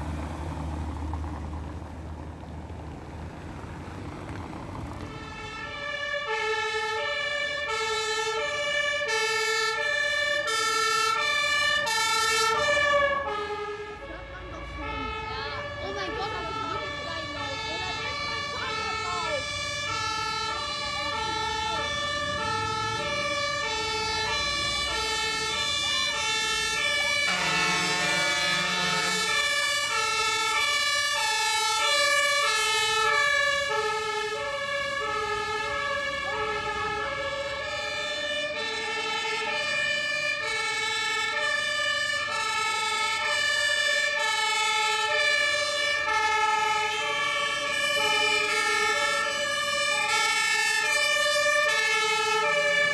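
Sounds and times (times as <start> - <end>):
two-tone fire engine sirens: 0.0 - 1.9, 3.1 - 52.9
truck engine rumble: 0.0 - 52.9
deep horn blasts: 27.3 - 29.4.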